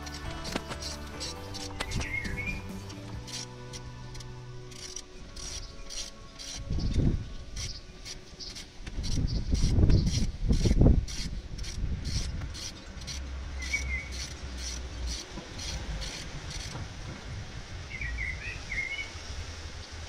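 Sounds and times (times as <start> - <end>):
socket ratchet clicking: 0.0 - 16.8.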